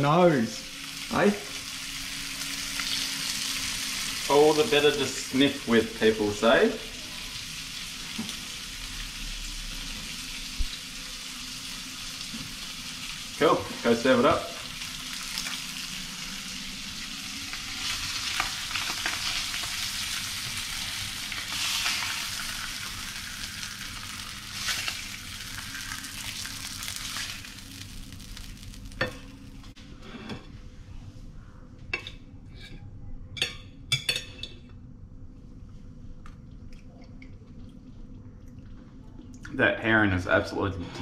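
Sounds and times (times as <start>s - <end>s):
fish sizzling in hot oil: 0.0s - 29.7s.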